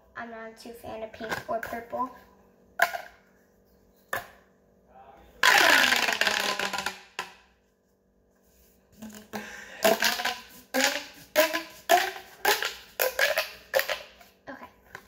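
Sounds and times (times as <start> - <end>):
plastic pop tube popping: 2.8 - 3.2, 4.2 - 4.4, 5.4 - 7.5, 9.0 - 14.3.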